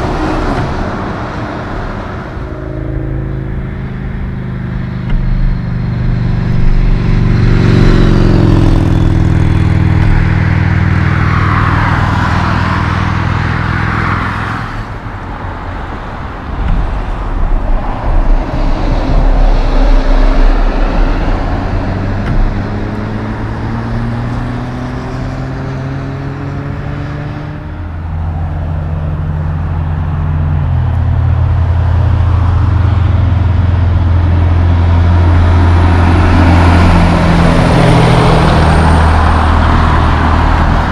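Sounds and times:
truck engine approaching: 0:00.0 - 0:40.9
trucks passing on highway: 0:00.0 - 0:40.9
tyre and wind noise: 0:14.4 - 0:40.9.

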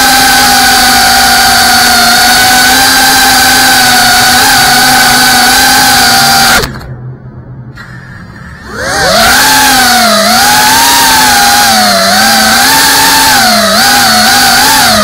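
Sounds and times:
drone motors whining: 0:00.0 - 0:07.0, 0:07.8 - 0:15.0.

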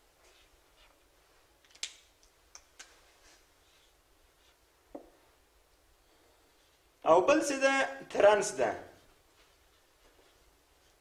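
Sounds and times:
marker tapping on whiteboard: 0:04.9 - 0:05.2.

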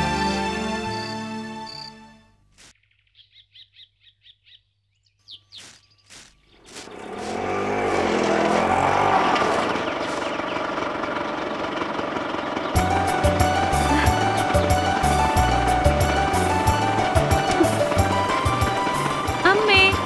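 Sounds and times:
bird chirping: 0:00.8 - 0:02.0, 0:02.7 - 0:07.4, 0:09.7 - 0:11.5
broom sweeping dirt: 0:05.5 - 0:10.4
autorickshaw engine: 0:06.6 - 0:20.0.

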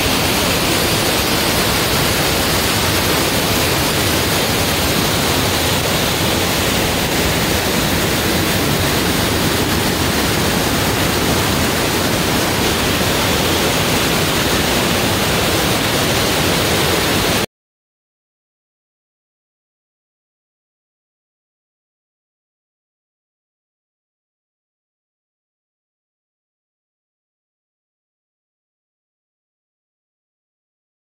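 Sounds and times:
waterfall roaring: 0:00.0 - 0:17.5.

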